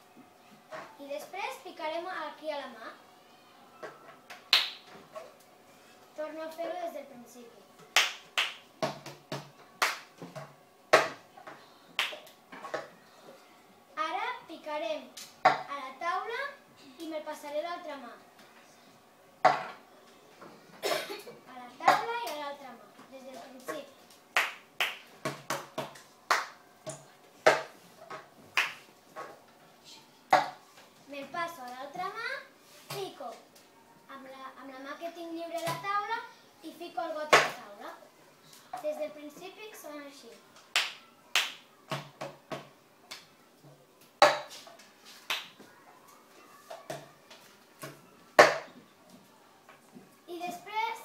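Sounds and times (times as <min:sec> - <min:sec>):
hand claps: 0:04.5 - 0:04.9, 0:08.0 - 0:10.1, 0:12.0 - 0:12.3, 0:24.4 - 0:26.6, 0:28.6 - 0:28.9, 0:40.7 - 0:41.7, 0:45.3 - 0:45.6.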